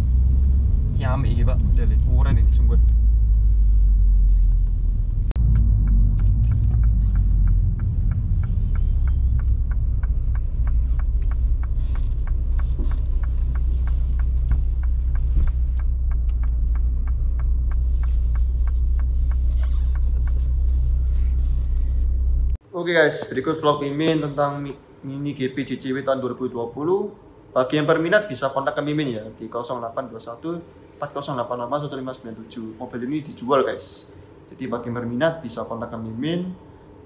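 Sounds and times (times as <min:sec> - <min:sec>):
car engine rumble inside cabin: 0:00.0 - 0:22.6
light even ticking: 0:05.3 - 0:21.4.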